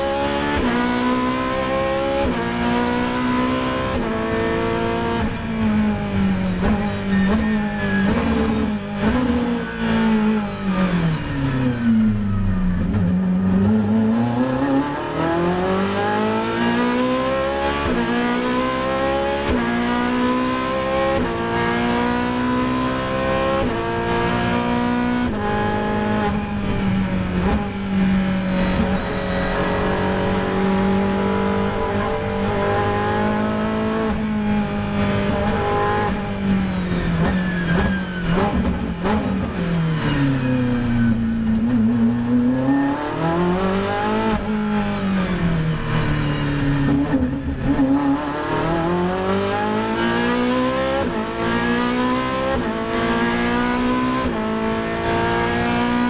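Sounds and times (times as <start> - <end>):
race car engine revving: 12.9 - 56.0.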